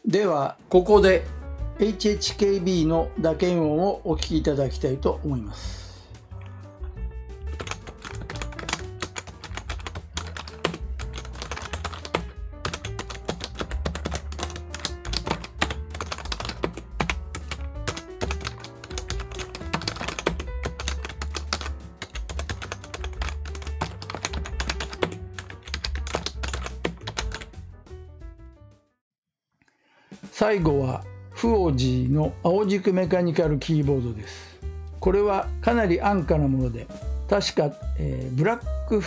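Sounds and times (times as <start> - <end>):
background music: 0.0 - 28.9, 29.9 - 39.0
fast keyboard typing: 7.5 - 27.6.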